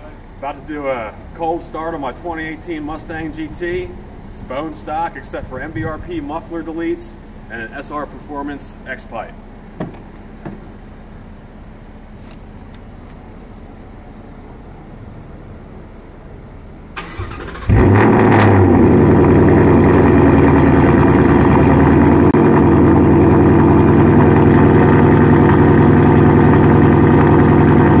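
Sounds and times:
car engine revving and idling: 17.0 - 28.0.

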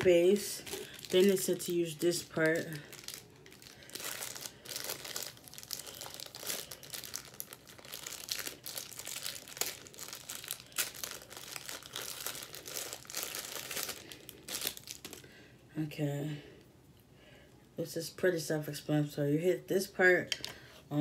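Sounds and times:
plastic bag crinkling: 0.0 - 15.3.

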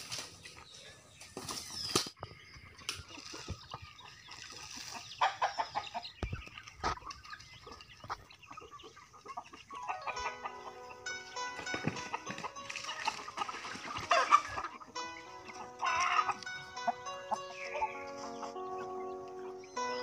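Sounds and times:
rustles in dry leaf litter: 0.0 - 2.1
chickens clucking: 0.0 - 20.0
music: 9.7 - 20.0.

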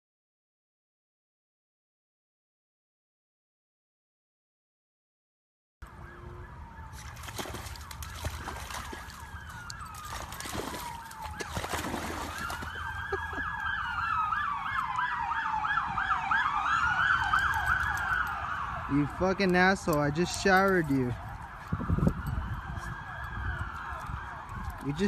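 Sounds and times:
siren wailing: 5.8 - 25.0
siren yelping: 5.8 - 25.0
splashing: 6.8 - 13.8.

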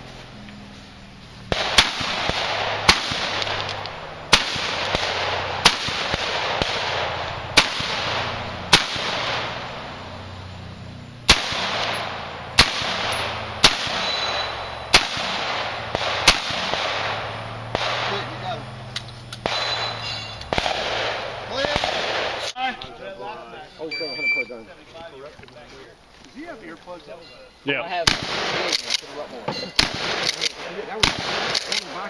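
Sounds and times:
pistol shots: 1.5 - 10.0, 11.2 - 18.6, 19.3 - 22.6, 28.0 - 32.0.

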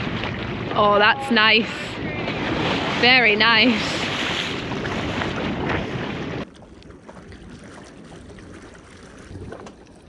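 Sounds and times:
wind on microphone: 0.0 - 6.5
boat noise: 0.0 - 10.0
water wash: 0.0 - 10.0.

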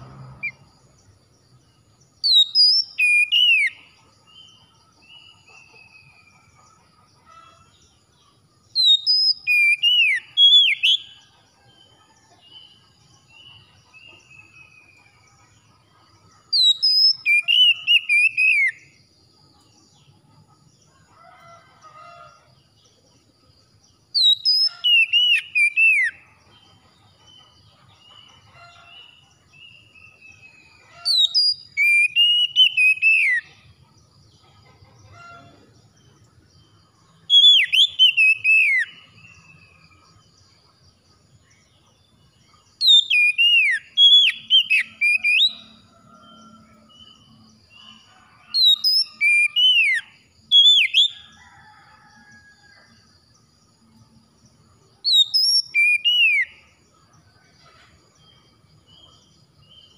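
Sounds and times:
bird singing whistled phrases: 2.2 - 3.8, 8.8 - 11.1, 16.6 - 18.8, 31.1 - 33.4, 37.4 - 39.0, 42.8 - 45.6, 55.1 - 56.5.

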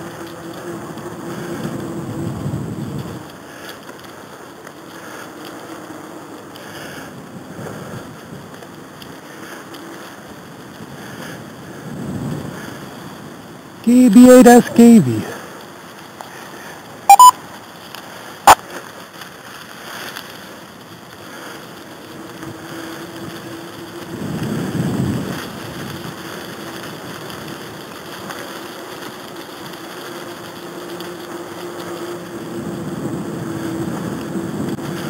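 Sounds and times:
wheels rolling over leaves: 0.0 - 13.8, 15.3 - 35.0
wind rushing over microphone: 1.5 - 3.3, 24.0 - 26.3, 32.4 - 35.0
loud double beep: 17.1 - 17.4.

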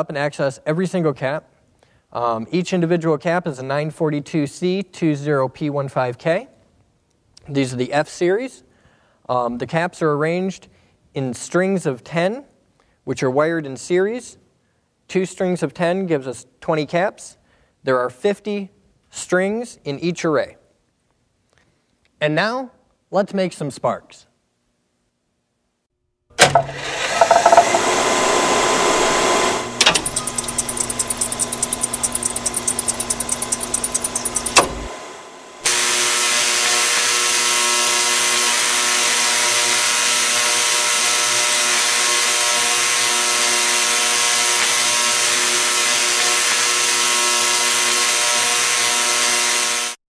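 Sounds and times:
tesla coil arcs buzzing: 29.6 - 34.9, 35.6 - 50.0.

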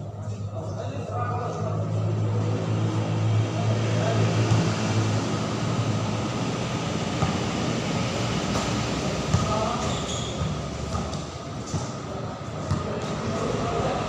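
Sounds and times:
steady rumbling noise: 1.1 - 9.8
faint voices: 8.8 - 14.0.

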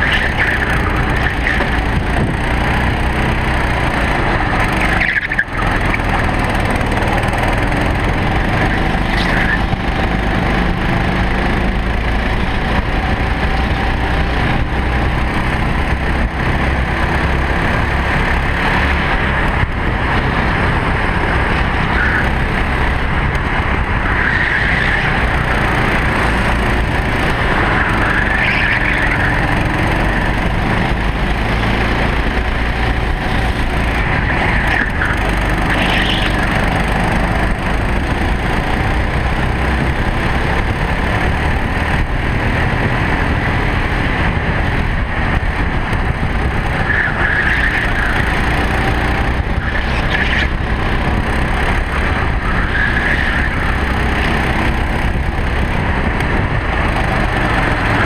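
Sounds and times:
kart engine running hard: 0.0 - 58.0.

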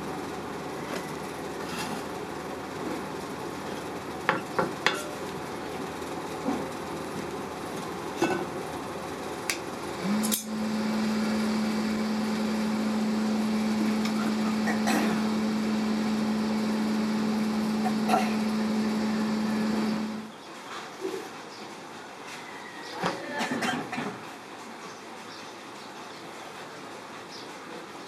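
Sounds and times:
machine hum: 0.0 - 20.3
workshop noise: 0.8 - 20.3.

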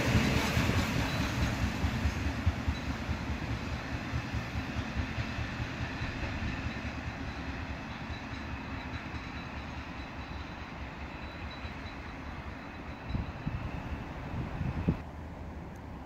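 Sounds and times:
train rumble: 0.0 - 16.0
wind buffeting microphone: 13.0 - 15.0.

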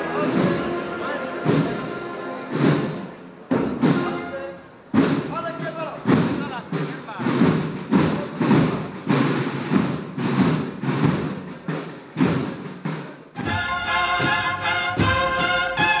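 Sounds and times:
music with sustained brass notes: 0.0 - 4.6, 13.4 - 16.0
band playing slow march: 0.0 - 16.0
strong drum beats: 0.0 - 16.0.

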